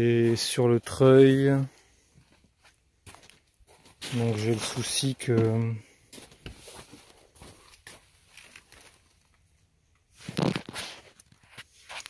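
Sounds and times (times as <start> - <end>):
scuffing rustle: 2.2 - 9.0.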